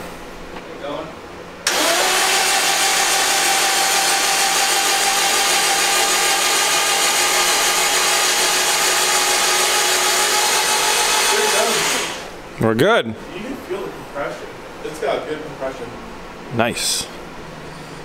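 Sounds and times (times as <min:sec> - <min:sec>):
starter motor cranking engine: 0:01.6 - 0:12.3.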